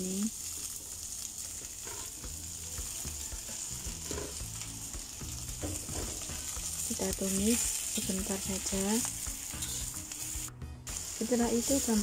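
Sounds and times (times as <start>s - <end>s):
vegetables sizzling in oil: 0.0s - 12.0s
metal spatula scraping pan: 1.8s - 2.2s, 3.9s - 4.4s, 5.7s - 6.4s, 9.6s - 10.0s.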